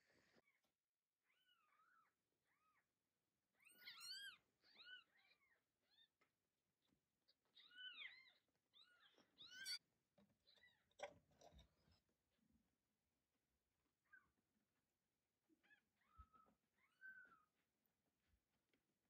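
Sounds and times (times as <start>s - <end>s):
newborn kittens mewing: 3.6s - 6.1s, 15.6s - 17.6s.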